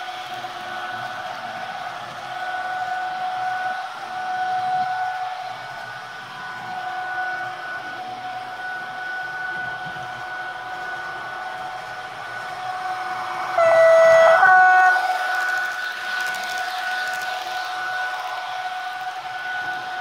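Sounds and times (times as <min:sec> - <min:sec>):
model locomotive electric whine: 0:00.0 - 0:20.0
two-tone horn: 0:13.5 - 0:16.3.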